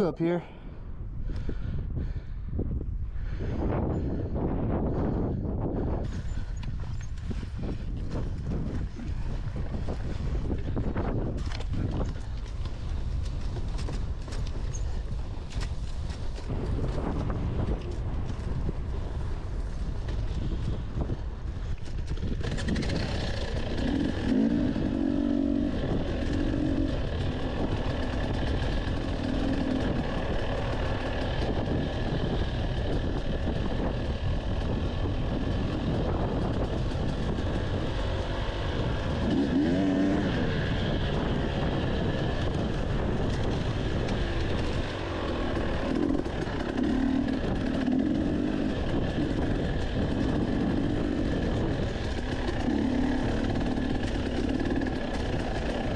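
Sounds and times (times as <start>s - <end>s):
dirt bike engine revving: 22.1s - 55.9s.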